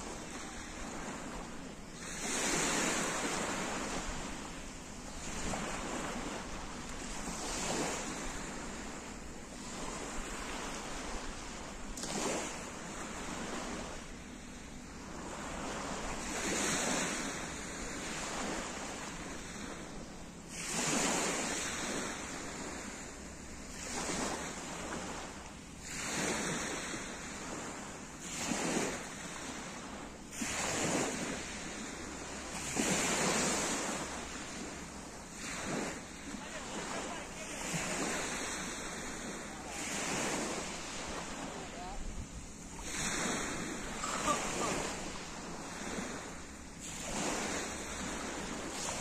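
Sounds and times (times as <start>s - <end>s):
waves washing over pebbles: 25.8s - 49.0s.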